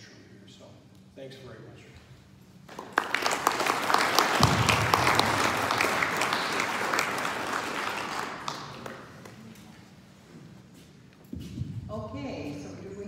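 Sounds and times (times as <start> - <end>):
audience applauding: 2.7 - 9.5.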